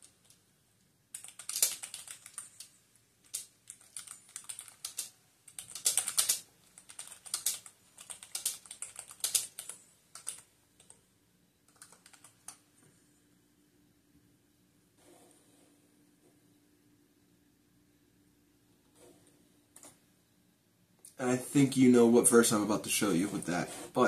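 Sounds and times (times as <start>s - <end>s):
computer keyboard typing: 0.0s - 0.4s, 1.1s - 11.0s, 11.7s - 12.6s.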